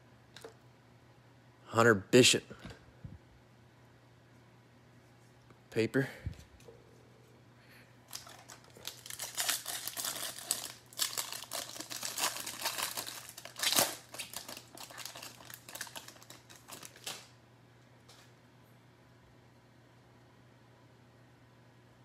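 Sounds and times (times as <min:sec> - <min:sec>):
plastic foil wrapper crinkling: 0:08.0 - 0:17.3.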